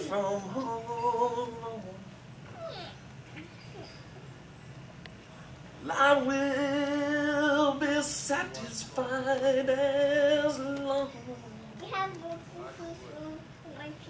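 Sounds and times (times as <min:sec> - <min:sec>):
person singing unaccompanied: 0:00.0 - 0:02.1, 0:05.8 - 0:12.4.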